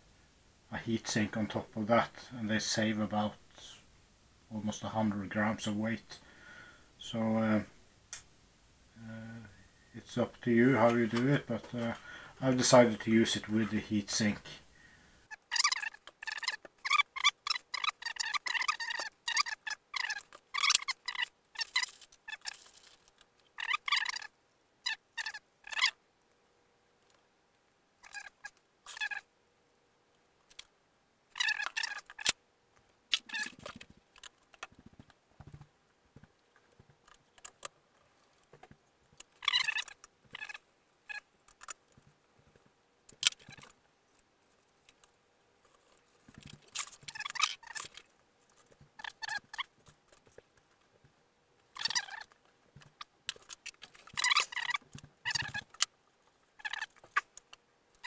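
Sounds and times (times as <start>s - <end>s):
squeaky rubbing: 15.3s - 26.0s, 28.0s - 29.3s, 31.3s - 32.4s, 33.1s - 35.6s, 39.3s - 41.8s, 43.2s - 43.8s, 45.6s - 50.3s, 51.7s - 55.9s, 56.6s - 57.3s
hands handling foam model: 15.4s - 24.3s, 31.4s - 58.0s.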